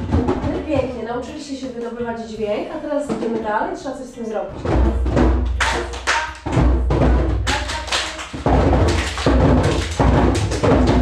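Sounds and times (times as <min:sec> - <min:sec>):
hand drums booming: 0:00.0 - 0:01.5, 0:04.5 - 0:11.0.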